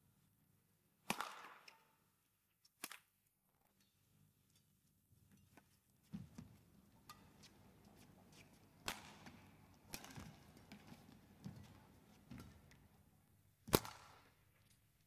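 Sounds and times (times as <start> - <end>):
rackets striking shuttlecock: 1.1 - 1.8, 6.3 - 12.9.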